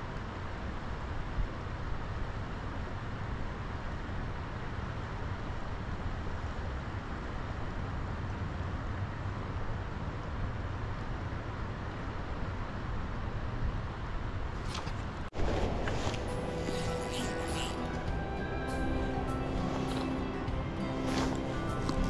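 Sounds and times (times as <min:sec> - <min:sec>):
creek flowing: 0:14.8 - 0:22.0.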